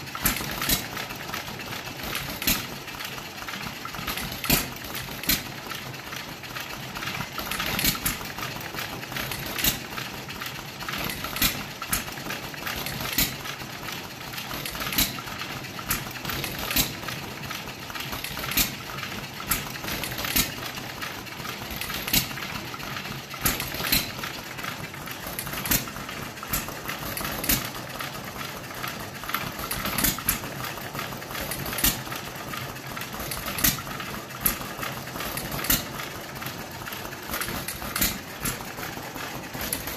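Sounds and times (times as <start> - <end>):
engine clicks and knocks: 0.0 - 39.9
hit-and-miss engines popping: 18.1 - 39.9.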